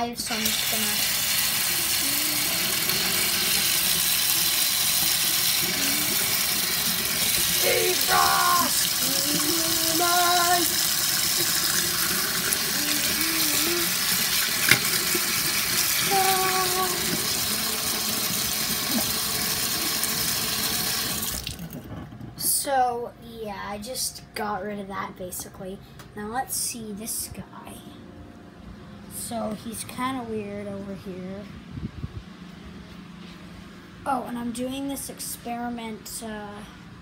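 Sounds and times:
tap water splashing into sink: 13.6 - 15.9.

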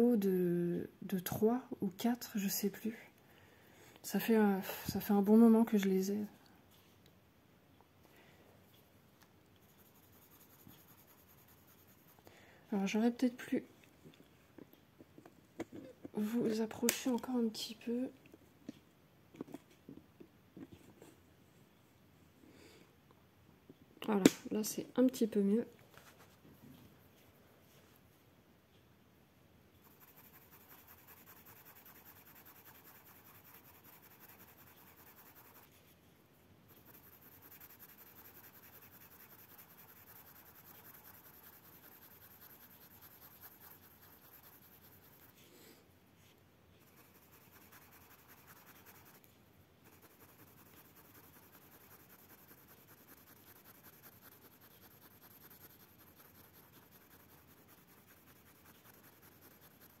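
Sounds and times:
pencil scratching on paper: 9.6 - 12.2, 29.8 - 35.8, 36.7 - 45.4, 46.8 - 60.0.

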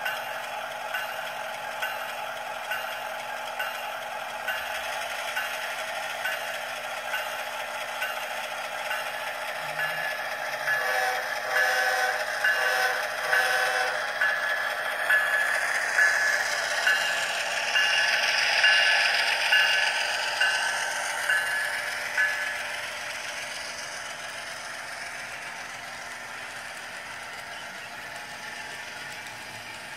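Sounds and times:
model train wheels clicking: 0.0 - 29.9
diesel engine sound: 7.0 - 29.9.

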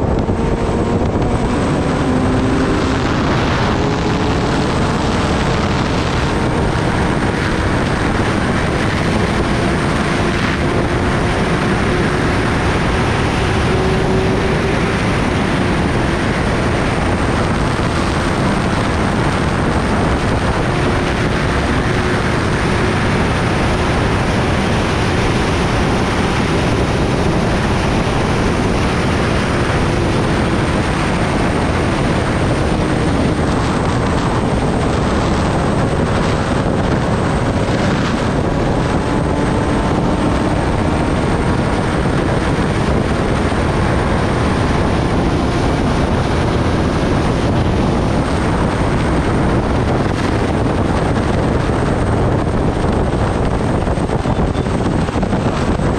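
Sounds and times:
motorcycle engine steady note: 0.0 - 55.9
wind noise on microphone: 0.0 - 55.9.

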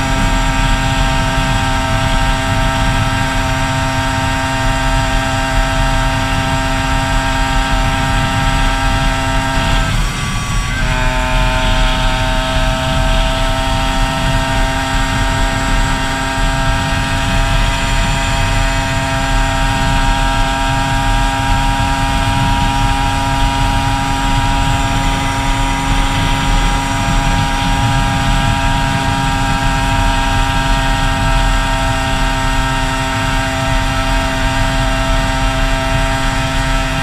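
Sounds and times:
motorcycle engine running: 0.0 - 37.0
wind noise on microphone: 0.0 - 37.0.

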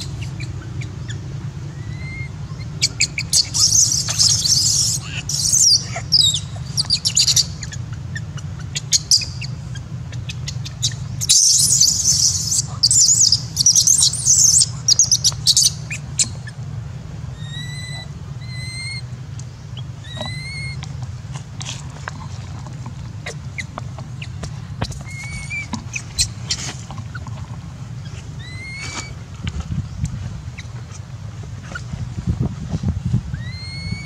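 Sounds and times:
baby monkey screaming: 0.0 - 16.6, 17.4 - 19.1, 19.8 - 20.8, 24.8 - 27.2, 28.0 - 29.2, 33.3 - 34.0
thin whistle-like calls: 0.0 - 16.6, 17.3 - 20.8, 23.2 - 27.3, 28.0 - 29.2, 33.3 - 34.0.

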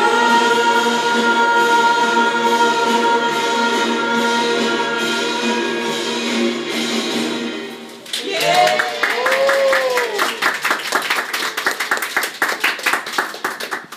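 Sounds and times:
group of people singing: 0.0 - 6.6
hand clapping: 8.1 - 13.9
voices cheering: 8.2 - 10.7.

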